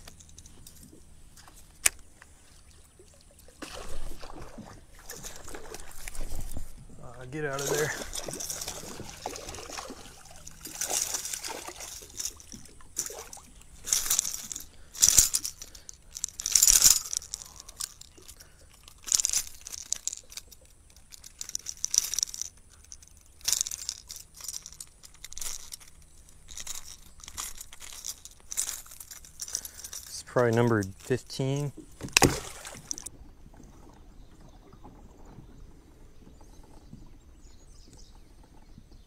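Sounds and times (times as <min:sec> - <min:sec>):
rustling handling: 0:07.4 - 0:33.1
fish splashing at water surface: 0:07.7 - 0:15.4.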